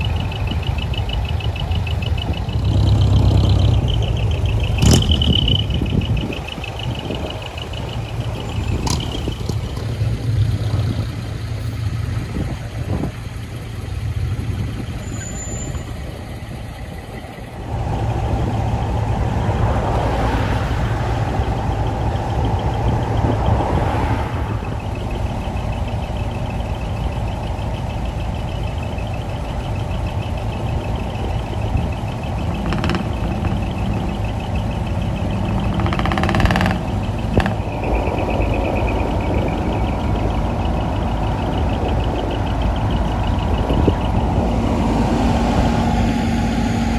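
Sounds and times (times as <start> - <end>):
truck engines rumbling: 0.0 - 46.9.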